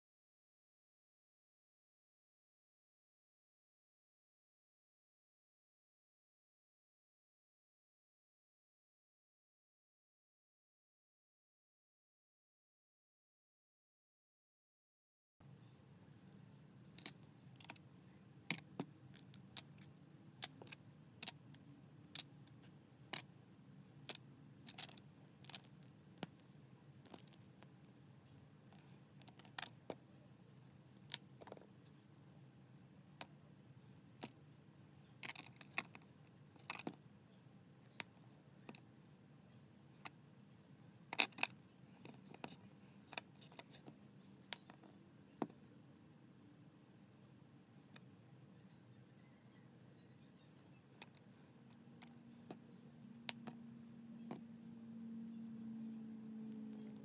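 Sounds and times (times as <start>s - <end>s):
faint steady hum: 15.4s - 57.0s
plastic bricks clicking: 35.2s - 36.0s.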